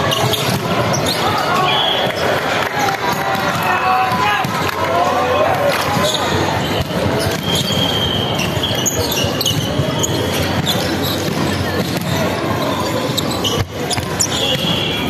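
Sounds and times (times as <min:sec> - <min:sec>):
shoe squeaks: 0:00.0 - 0:02.4, 0:05.8 - 0:15.0
background din of voices: 0:00.0 - 0:15.0.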